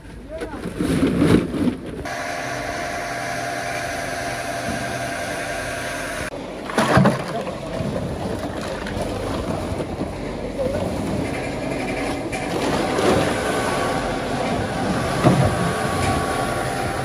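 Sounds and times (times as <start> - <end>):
mechanical drone with whine: 2.1 - 6.4, 11.2 - 17.0.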